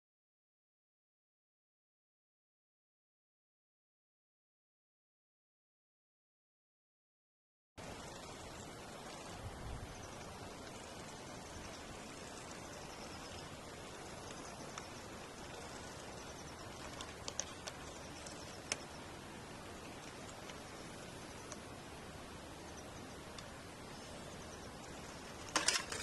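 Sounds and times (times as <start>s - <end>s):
low background hiss: 7.8s - 26.0s
faint high chirping: 7.9s - 21.8s, 22.4s - 26.0s
sharp clicks: 14.2s - 19.0s.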